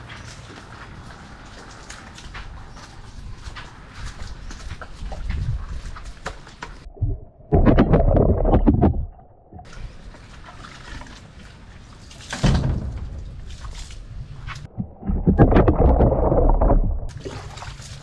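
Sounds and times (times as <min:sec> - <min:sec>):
water splashing: 0:06.8 - 0:18.0.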